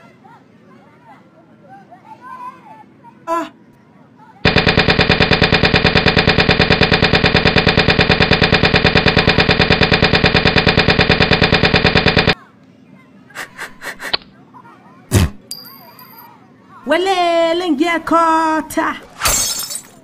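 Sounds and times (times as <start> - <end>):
loud rapid pulsing buzz: 4.4 - 12.4.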